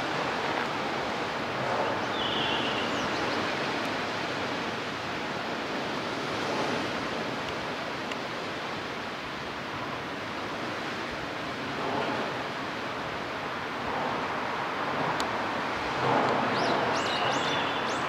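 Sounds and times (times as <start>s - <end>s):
small waves washing ashore: 0.0s - 18.0s.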